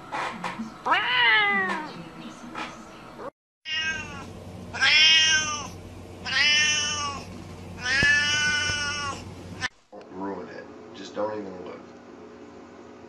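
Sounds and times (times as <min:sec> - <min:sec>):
cat meowing: 0:00.9 - 0:01.9, 0:03.7 - 0:09.7
second cat meowing: 0:03.7 - 0:09.7.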